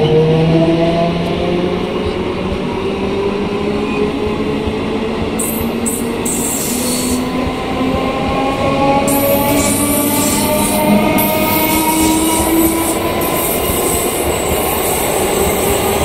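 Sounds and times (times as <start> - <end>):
wheels rumbling on rails: 0.0 - 16.0
high hiss: 5.4 - 7.3
electric train motors whining: 5.4 - 16.0.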